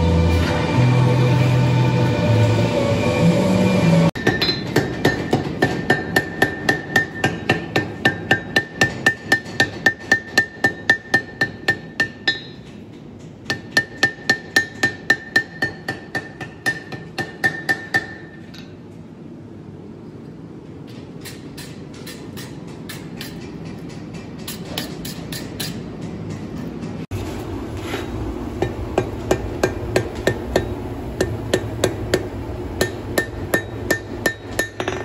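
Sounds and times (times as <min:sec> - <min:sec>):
hammer striking steel on anvil: 0:04.2 - 0:18.8, 0:21.2 - 0:26.9, 0:28.6 - 0:35.0.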